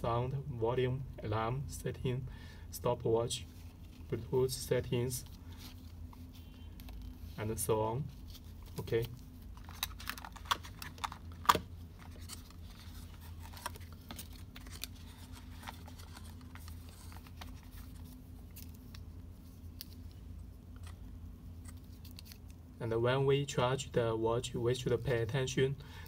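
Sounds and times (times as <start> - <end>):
steady low hum: 0.0 - 26.0
paper and cardboard rustling: 5.3 - 20.0.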